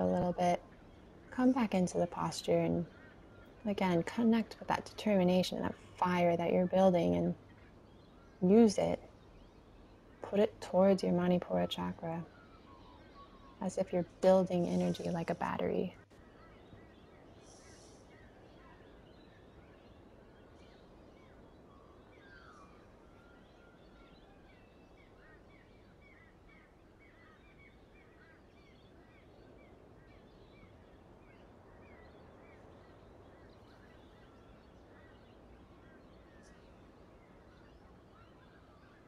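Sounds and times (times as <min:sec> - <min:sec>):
distant birds chirping: 0:00.0 - 0:39.0
faint background hiss: 0:00.0 - 0:39.0.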